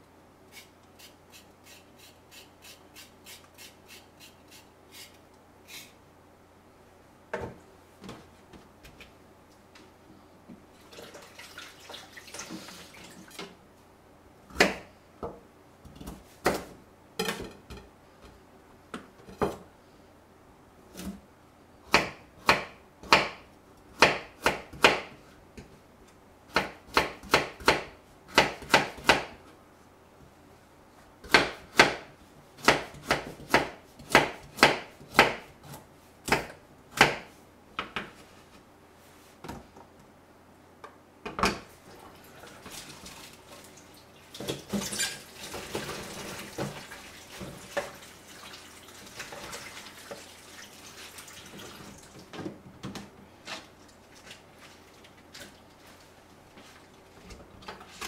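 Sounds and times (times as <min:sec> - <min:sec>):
knife chopping on wooden board: 0:31.2 - 0:32.0, 0:32.6 - 0:37.3.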